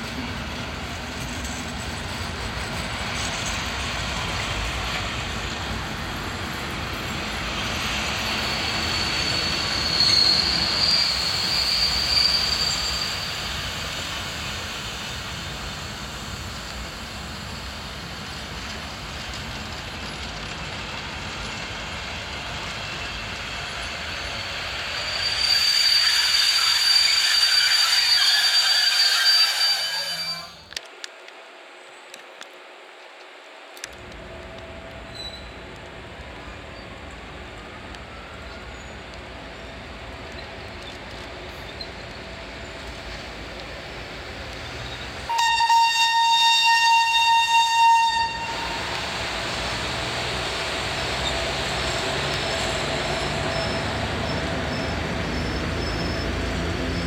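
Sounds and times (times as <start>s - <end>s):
train rumbling on rails: 0.0s - 57.0s
steel wheels squealing: 6.6s - 16.4s, 21.6s - 30.8s, 35.1s - 35.6s, 44.6s - 57.0s.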